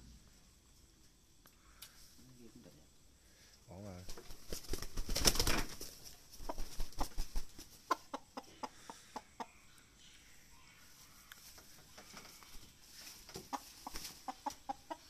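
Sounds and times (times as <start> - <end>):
chicken flapping wings: 4.0 - 8.1, 11.4 - 14.9.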